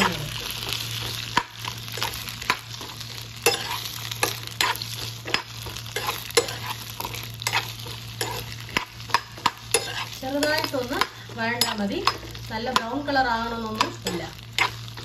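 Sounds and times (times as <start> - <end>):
okra sizzling in oil: 0.0 - 15.0
spoon scraping a pan: 0.0 - 15.0
steady low hum: 0.0 - 15.0.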